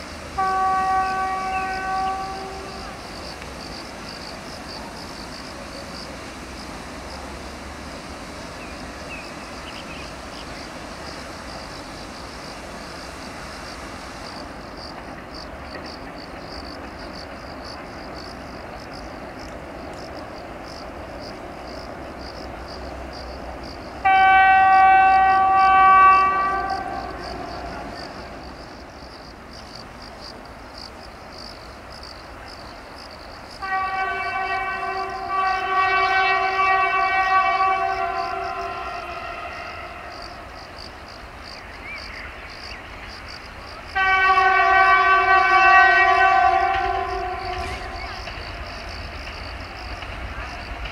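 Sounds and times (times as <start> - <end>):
diesel locomotive horn blasts: 0.3 - 3.2, 24.0 - 28.4, 33.5 - 40.6, 43.8 - 49.2.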